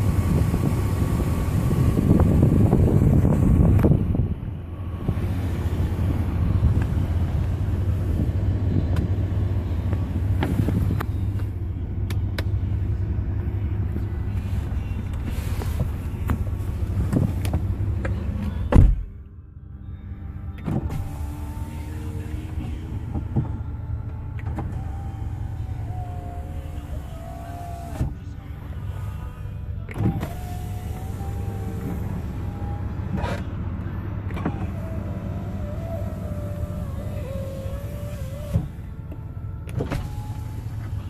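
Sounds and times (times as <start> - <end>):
wind rumble: 0.0 - 11.2
electric window motor whining: 0.0 - 11.6, 19.8 - 41.0
car door shutting: 15.1 - 19.2, 20.6 - 28.2, 29.9 - 33.6, 34.2 - 41.0.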